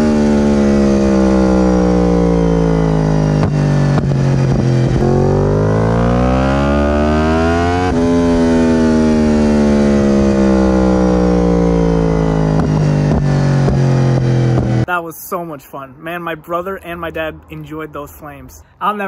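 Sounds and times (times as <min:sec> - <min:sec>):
motorcycle engine revving: 0:00.0 - 0:14.9
exhaust pops: 0:03.0 - 0:05.4, 0:12.2 - 0:14.9.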